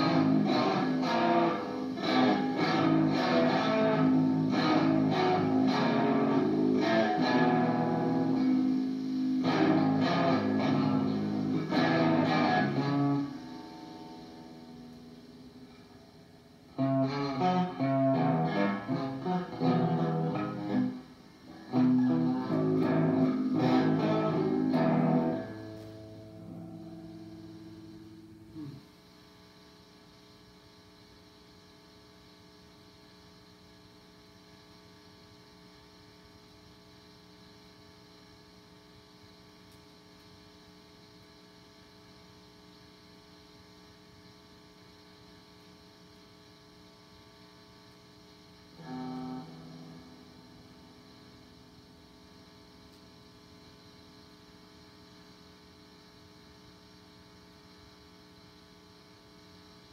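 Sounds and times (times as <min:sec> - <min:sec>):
electric guitar chord: 0:00.0 - 0:28.8, 0:48.5 - 0:52.0
guitar amp mains hum: 0:00.0 - 0:59.9.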